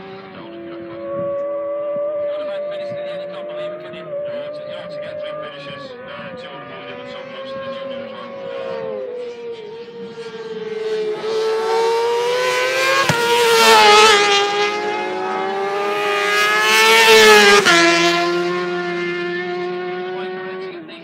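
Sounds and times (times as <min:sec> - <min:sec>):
motorcycle engine at high revs: 0:00.0 - 0:21.0
engine crack: 0:12.3 - 0:14.0.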